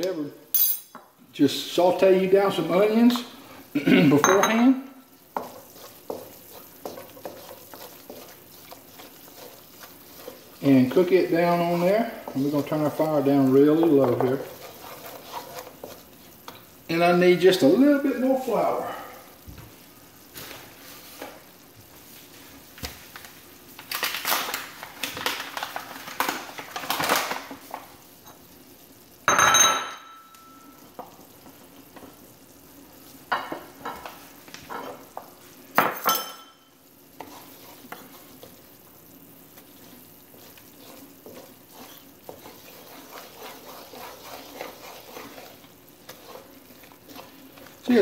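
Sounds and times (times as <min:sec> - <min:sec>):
roux sizzling in a wok: 0:00.0 - 0:48.0
kitchenware clinking: 0:00.5 - 0:01.2, 0:03.9 - 0:05.5, 0:29.3 - 0:30.8, 0:33.3 - 0:34.1, 0:35.8 - 0:36.8.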